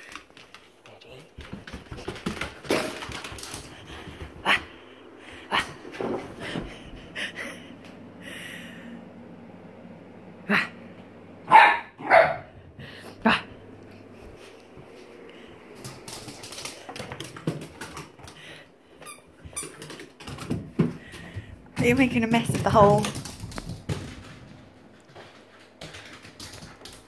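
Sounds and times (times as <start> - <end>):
small dog barking: 11.5 - 12.5.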